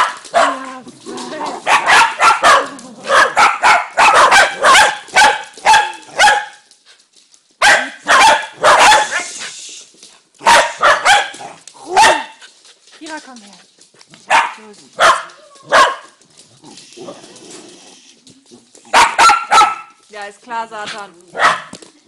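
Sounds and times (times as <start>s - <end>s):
small dogs barking: 0.0s - 0.8s, 1.5s - 6.7s, 7.6s - 9.4s, 10.4s - 12.4s, 14.2s - 16.2s, 18.8s - 20.0s, 21.3s - 21.8s.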